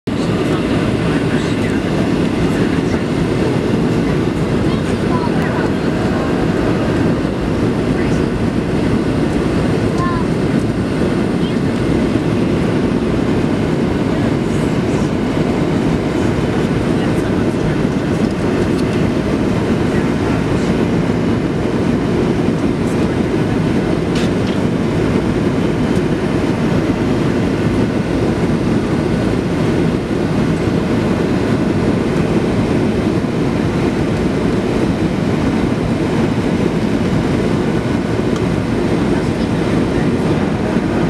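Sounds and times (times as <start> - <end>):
deep airplane cabin rumble: 0.0 - 41.0.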